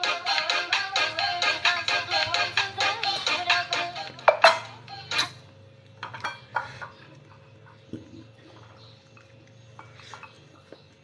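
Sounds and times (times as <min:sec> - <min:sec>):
ceramic dishes clinking: 0:04.3 - 0:04.7, 0:06.0 - 0:07.0.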